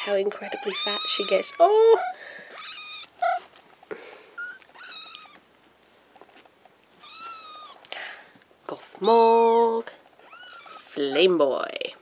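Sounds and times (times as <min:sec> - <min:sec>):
kittens mewing: 0:00.0 - 0:05.4, 0:07.0 - 0:07.9
kitten chirps: 0:02.6 - 0:03.4, 0:04.4 - 0:05.4, 0:07.0 - 0:07.8.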